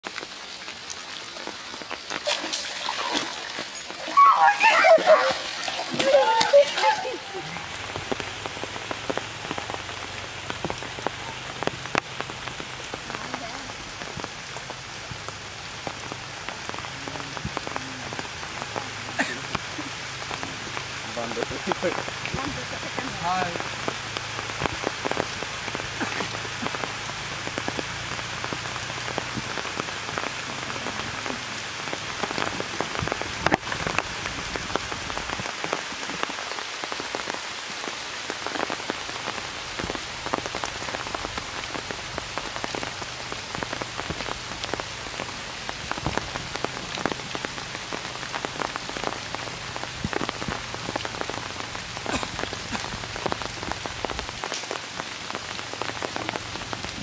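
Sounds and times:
rain on foliage and water: 0.0s - 57.0s.

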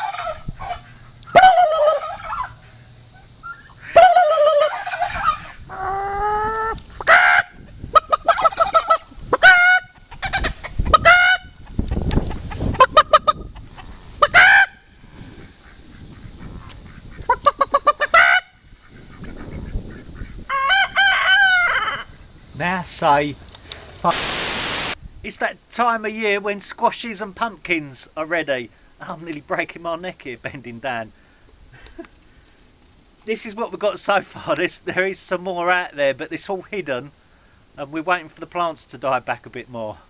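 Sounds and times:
man imitating gobbling calls: 0.0s - 2.5s, 3.9s - 10.2s
turkeys gobbling: 0.0s - 22.1s.

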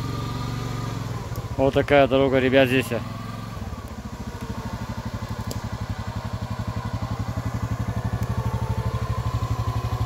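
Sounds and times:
quad bike engine at low revs: 0.0s - 10.0s.

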